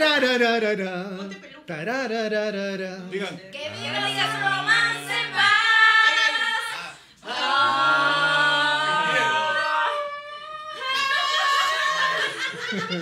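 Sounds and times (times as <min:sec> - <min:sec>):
men and women singing a ballad: 0:00.0 - 0:10.4.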